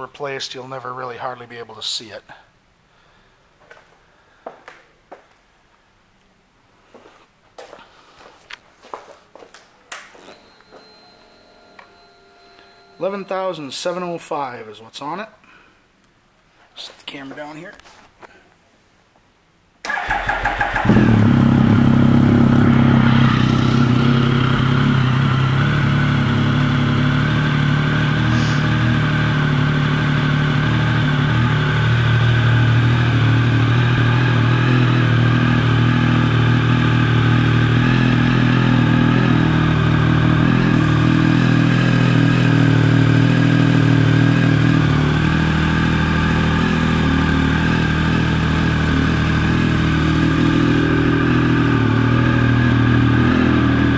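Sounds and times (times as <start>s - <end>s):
motorcycle engine starting and idling: 19.9s - 53.9s.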